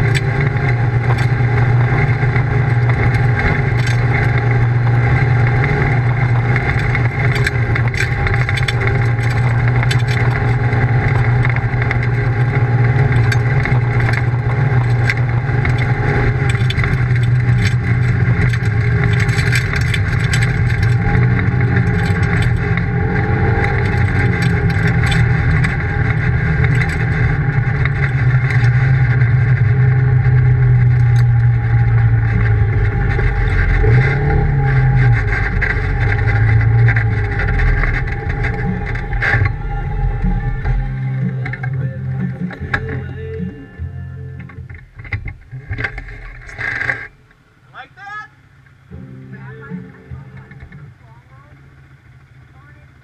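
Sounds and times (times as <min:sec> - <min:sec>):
tyres on gravel: 0:00.0 - 0:53.0
vehicle engine cruising: 0:00.0 - 0:53.0.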